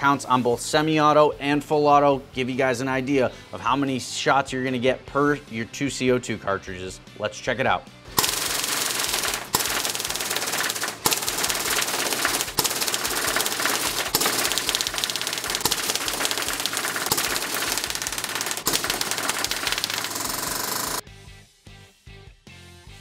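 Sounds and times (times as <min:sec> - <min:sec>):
bb rifle rapid firing: 0:08.1 - 0:21.0.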